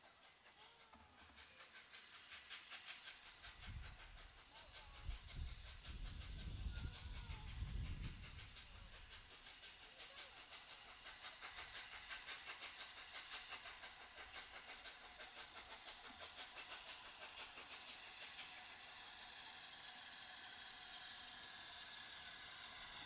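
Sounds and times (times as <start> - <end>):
steam hissing: 0.0 - 23.0
steam locomotive chuffing: 0.0 - 23.0
wind rumble on microphone: 5.4 - 8.4.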